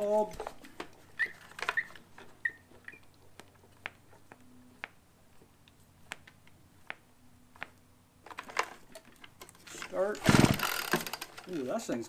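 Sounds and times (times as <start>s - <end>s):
small squeaks: 0.4s - 4.9s.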